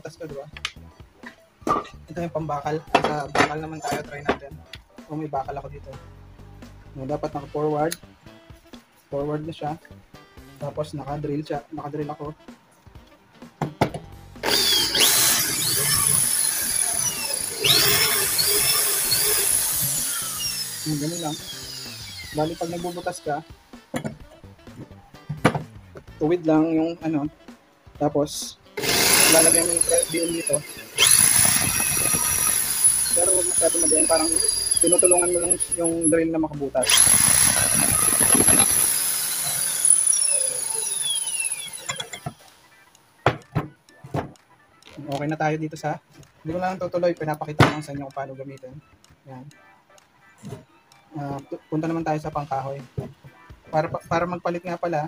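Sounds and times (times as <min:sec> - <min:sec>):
drill boring into steel: 0:14.4 - 0:23.3, 0:28.8 - 0:36.2, 0:36.8 - 0:42.4
drill knocking on workbench: 0:36.8 - 0:40.0.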